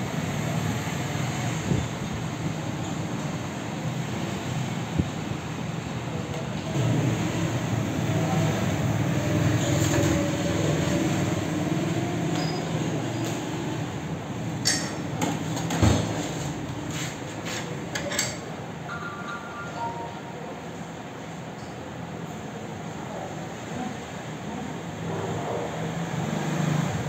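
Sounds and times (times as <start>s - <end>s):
short high tone: 18.8s - 20.8s.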